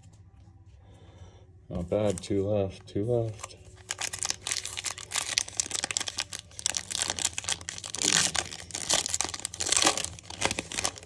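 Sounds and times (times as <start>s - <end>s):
foil wrapper tearing and crinkling: 3.8s - 11.0s.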